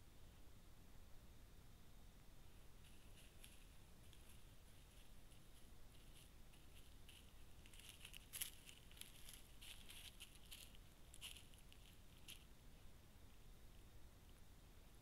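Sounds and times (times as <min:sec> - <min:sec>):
dry leaves rustling and crackling: 0:02.8 - 0:12.5.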